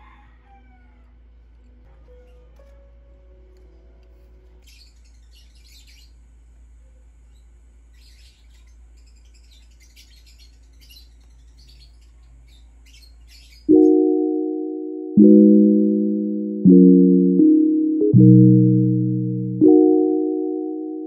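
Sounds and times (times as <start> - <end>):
faint bird chirping: 3.4 - 15.2
low steady hum: 3.4 - 21.0.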